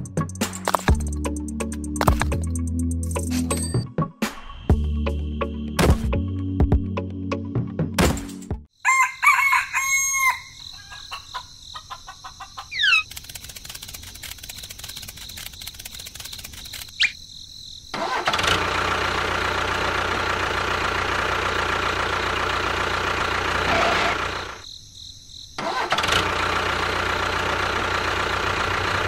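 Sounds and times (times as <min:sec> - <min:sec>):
tractor engine running: 0:12.7 - 0:17.1, 0:18.0 - 0:24.6, 0:25.6 - 0:29.0.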